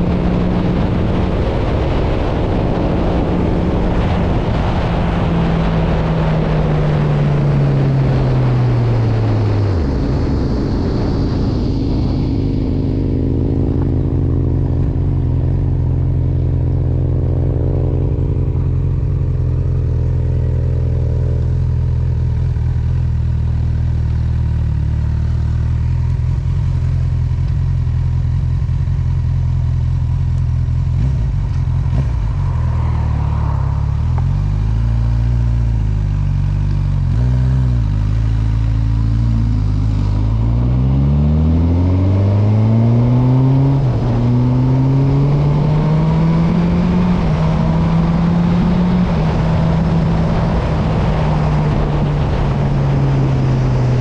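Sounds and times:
motorcycle engine pitch falling: 0.0s - 54.0s.

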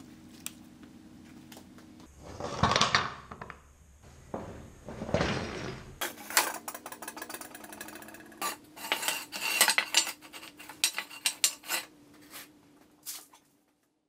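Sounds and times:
metal pipes clanking on concrete: 6.0s - 11.9s.

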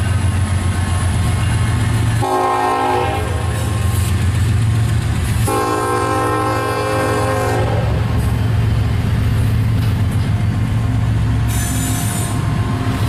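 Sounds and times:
diesel locomotives rumbling: 0.0s - 13.0s
train horn: 2.2s - 3.8s, 5.4s - 8.1s
train wheel squeal: 11.4s - 13.0s.

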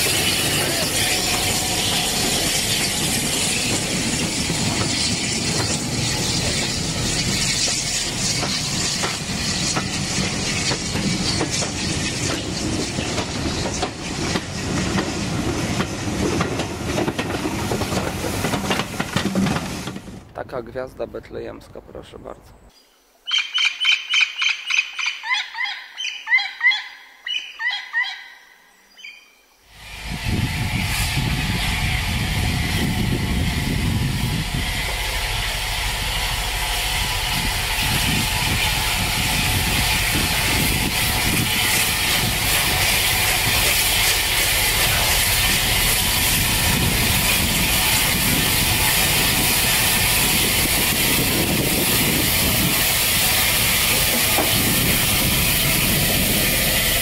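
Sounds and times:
steam locomotive hissing: 0.0s - 20.1s, 29.7s - 57.0s
short chirping calls: 22.6s - 29.4s.

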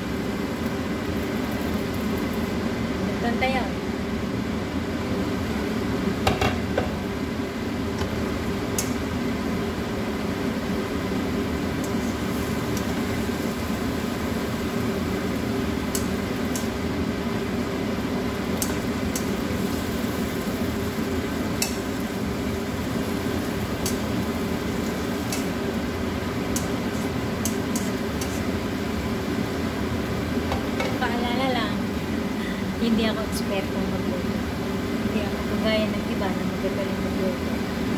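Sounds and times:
steady low hum: 0.0s - 37.9s
spatula scraping frying pan: 26.5s - 28.6s.

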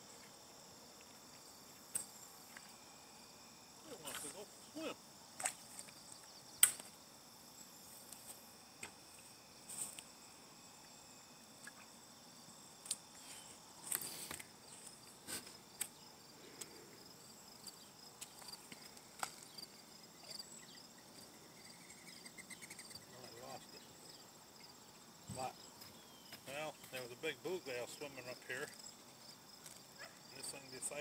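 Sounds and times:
crickets chirping: 0.0s - 31.0s.

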